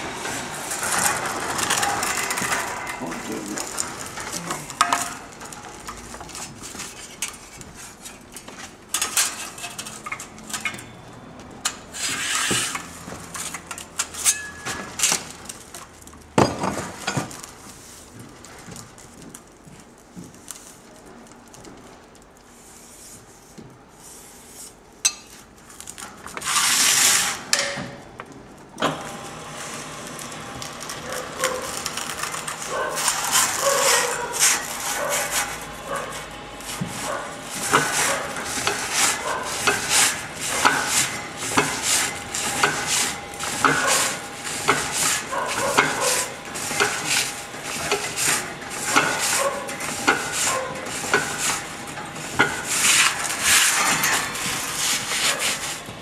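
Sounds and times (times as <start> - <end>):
metal-on-metal scraping: 0.2 - 15.3, 26.3 - 28.0, 30.8 - 55.8.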